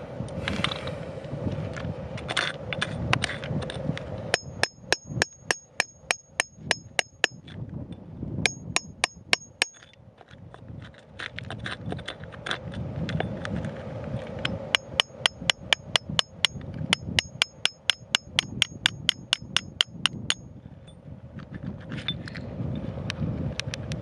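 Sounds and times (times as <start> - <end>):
hammer tapping steel chisel: 4.4 - 7.4, 8.5 - 9.8, 14.4 - 20.4.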